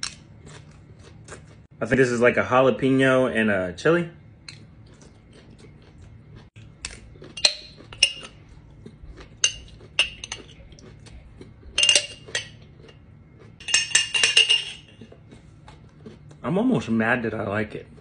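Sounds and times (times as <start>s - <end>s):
spoon clinking against glass jar: 7.3s - 8.4s, 9.4s - 10.6s, 11.8s - 13.0s, 13.6s - 15.1s.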